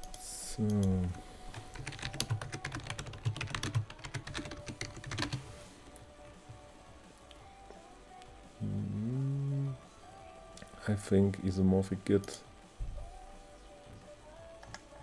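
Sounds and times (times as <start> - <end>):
typing on computer keyboard: 0.0 - 5.4.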